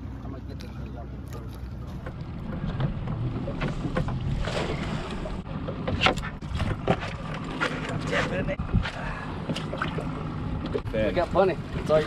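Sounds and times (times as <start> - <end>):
outboard motor idling: 0.1 - 12.0
water lapping against hull: 0.7 - 12.0
wind on microphone: 8.4 - 9.0.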